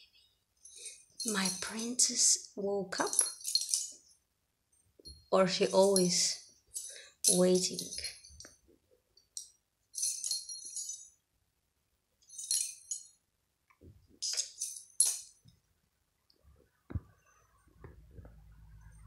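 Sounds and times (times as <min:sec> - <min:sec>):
small bell jingling: 0:00.6 - 0:04.2, 0:05.0 - 0:08.6, 0:09.2 - 0:11.2, 0:12.2 - 0:13.2, 0:14.2 - 0:15.5.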